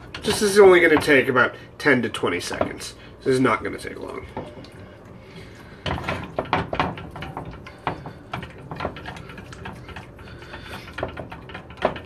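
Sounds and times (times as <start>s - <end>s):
whisk knocking and scraping pot: 0.0s - 1.4s, 2.3s - 3.0s, 5.4s - 12.0s.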